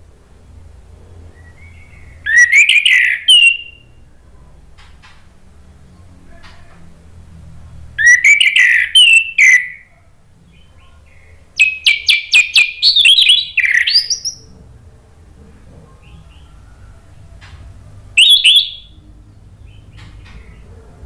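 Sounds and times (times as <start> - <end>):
thrush singing whistled notes: 1.3 - 4.0, 8.0 - 9.9, 11.6 - 14.5, 18.1 - 19.0
sharp clicks in birdsong: 4.8 - 5.3, 19.7 - 20.7.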